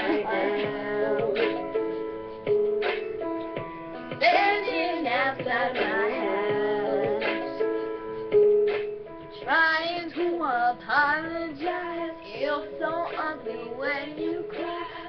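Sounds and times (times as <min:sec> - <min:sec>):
women singing pop ballad: 0:00.0 - 0:02.0, 0:04.1 - 0:07.9, 0:09.4 - 0:15.0.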